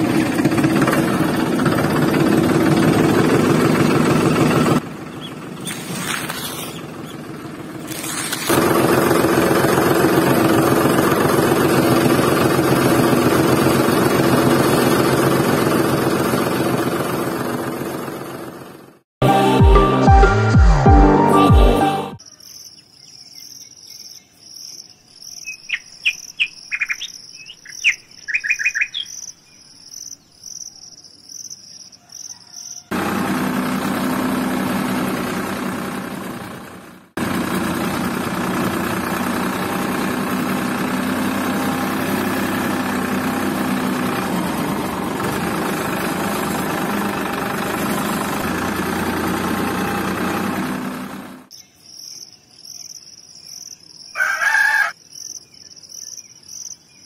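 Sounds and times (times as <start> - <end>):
small motor humming: 0.0 - 17.8, 32.9 - 51.5
bird chirps: 5.1 - 7.2, 22.2 - 32.9, 51.5 - 57.0
insects chirping: 22.2 - 32.9, 51.5 - 57.0.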